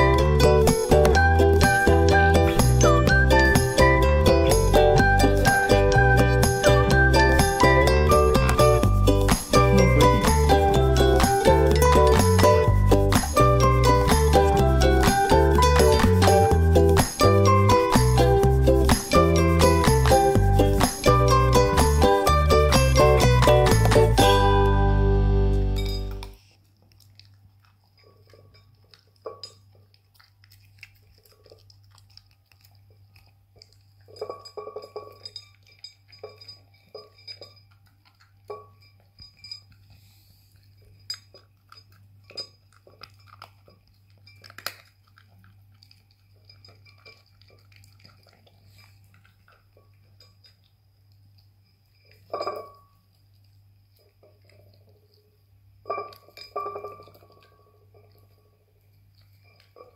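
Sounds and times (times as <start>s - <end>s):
kibble clinking against bowl: 0.0s - 24.5s, 27.9s - 29.9s, 33.6s - 50.7s, 51.7s - 53.1s, 55.8s - 58.6s
dog crunching kibble: 0.0s - 24.8s, 25.6s - 52.3s.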